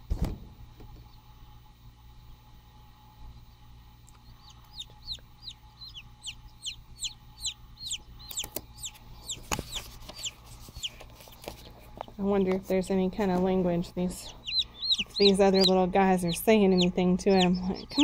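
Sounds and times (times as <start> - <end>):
chicks peeping: 4.1 - 18.0.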